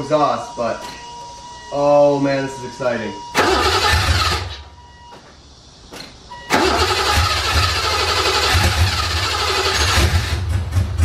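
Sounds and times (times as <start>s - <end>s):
car engine cranking: 3.3s - 4.6s, 6.5s - 11.0s.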